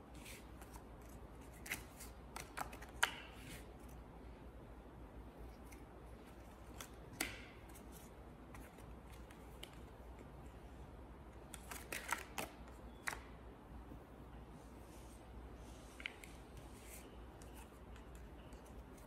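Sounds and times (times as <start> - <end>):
playing cards flicking and snapping: 0.2 - 3.7, 6.5 - 10.2, 11.4 - 13.3.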